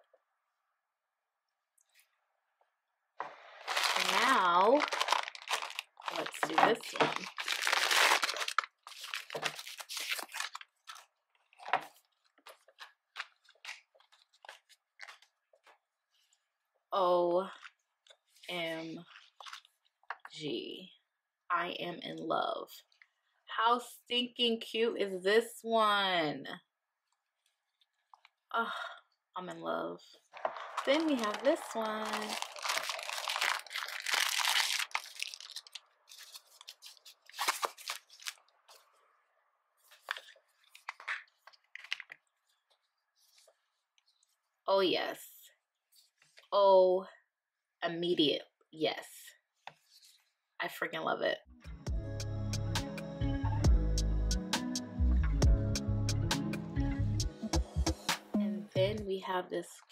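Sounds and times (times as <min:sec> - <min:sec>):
phone case rustling in foam: 0:03.3 - 0:15.3, 0:30.4 - 0:38.4
plastic bag crinkling and tearing: 0:03.3 - 0:15.3, 0:18.8 - 0:19.8, 0:30.4 - 0:38.8, 0:39.9 - 0:42.6.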